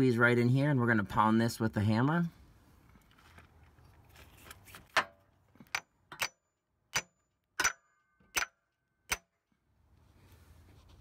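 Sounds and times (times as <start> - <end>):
hammer striking metal: 6.1 - 9.4.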